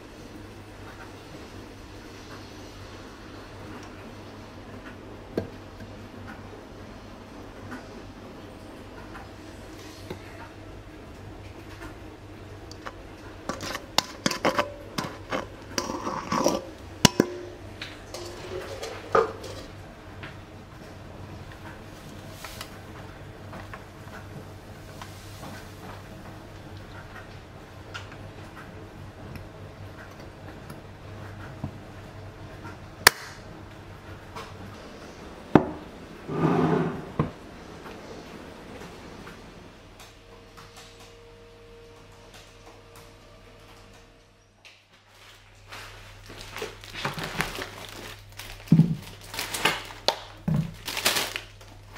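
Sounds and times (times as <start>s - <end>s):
dishes and utensils clinking: 12.7s - 19.7s.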